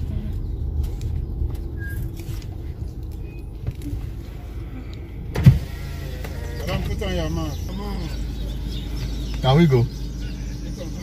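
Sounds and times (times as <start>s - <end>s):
car engine idling: 0.0s - 11.0s
loud thump: 5.3s - 5.7s.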